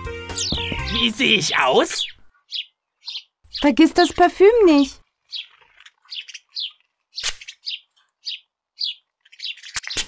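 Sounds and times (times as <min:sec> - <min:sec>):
cartoon birdsong chirps: 0:00.2 - 0:10.0.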